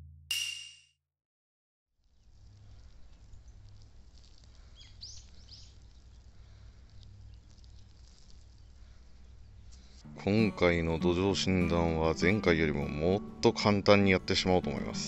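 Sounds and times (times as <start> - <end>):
bird chirps: 4.6 - 7.9.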